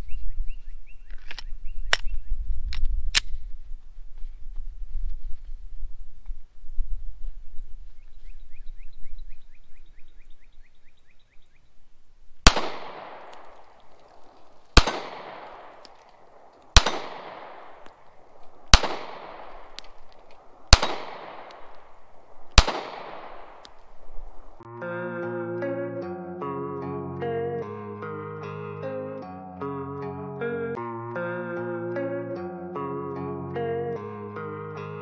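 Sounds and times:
pistol shots with echo: 12.4 - 24.6.

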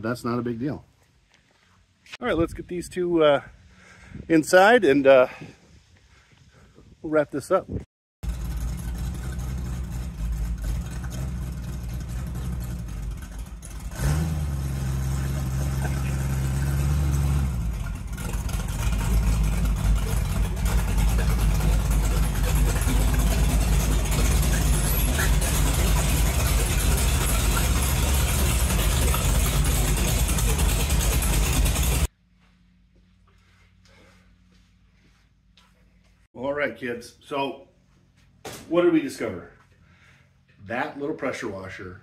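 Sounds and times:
car engine running: 8.2 - 32.1.

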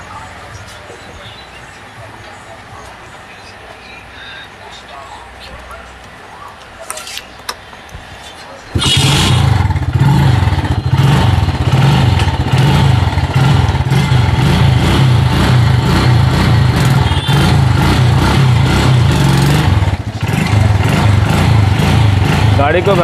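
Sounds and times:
motorcycle engine revving: 8.7 - 23.0.

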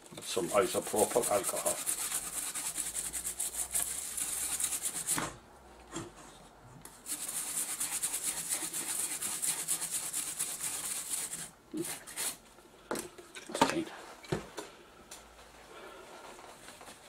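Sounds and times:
brush scrubbing circuit board: 0.3 - 5.2, 7.0 - 12.4.

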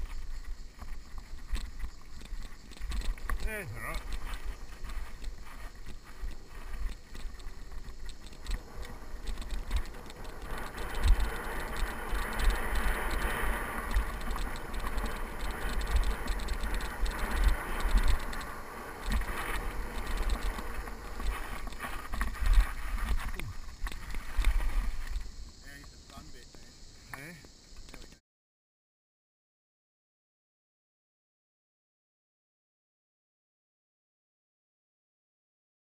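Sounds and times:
bike thumping and rattling: 0.0 - 25.6
bike tyres on loose dirt: 0.0 - 28.2.

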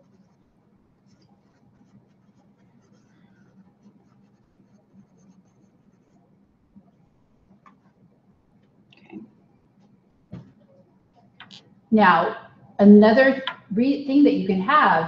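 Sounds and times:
stylus scratching on pen tablet: 0.0 - 8.0
low steady hum: 0.0 - 15.0.

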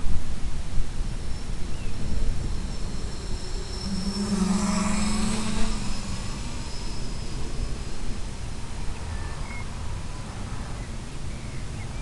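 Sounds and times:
steady hiss and rumble: 0.0 - 12.0
model aircraft motor hum: 2.1 - 8.8.

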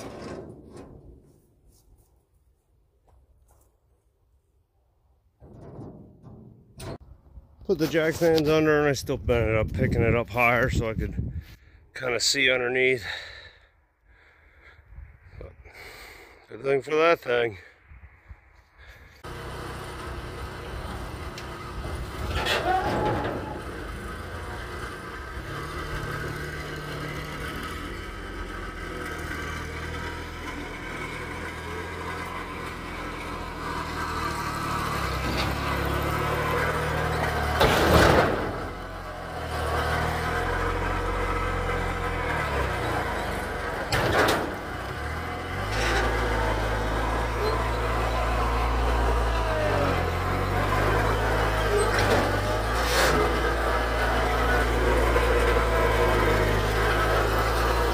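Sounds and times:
tractor diesel engine running: 18.6 - 57.9.

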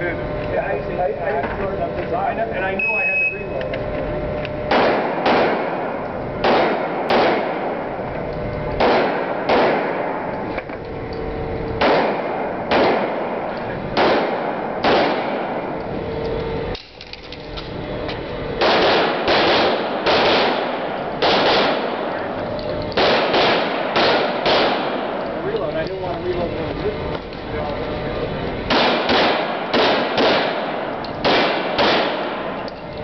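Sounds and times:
handgun shots echoing indoors: 4.7 - 7.8, 8.8 - 10.5, 11.8 - 15.8, 18.6 - 22.2, 22.9 - 25.2, 28.7 - 32.7.

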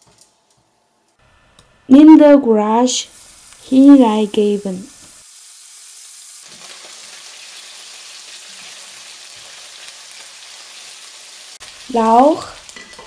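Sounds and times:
meat sizzling in hot oil: 2.8 - 13.0.

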